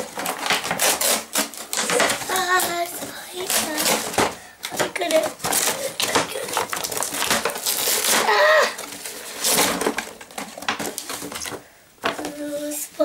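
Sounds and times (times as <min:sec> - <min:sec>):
cardboard and plastic tearing: 0:00.0 - 0:12.7
child's voice: 0:01.9 - 0:06.6, 0:12.1 - 0:13.0.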